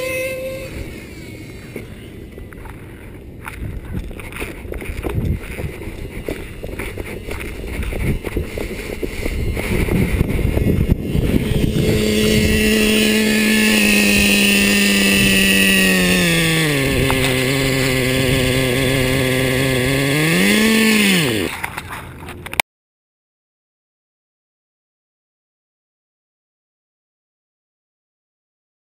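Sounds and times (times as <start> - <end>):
small nitro engine running: 0.0 - 2.8, 4.8 - 21.6
footsteps: 1.5 - 12.5
handling scuffs and clicks: 1.7 - 9.7, 21.5 - 22.6.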